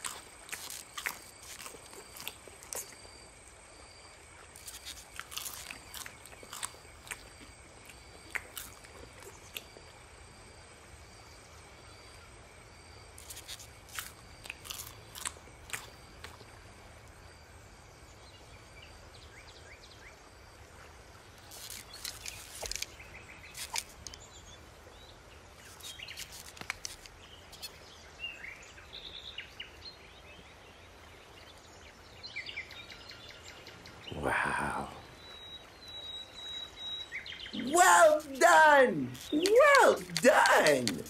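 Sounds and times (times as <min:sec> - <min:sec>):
crunches: 0:21.4 - 0:24.2, 0:25.6 - 0:27.7, 0:37.6 - 0:41.0.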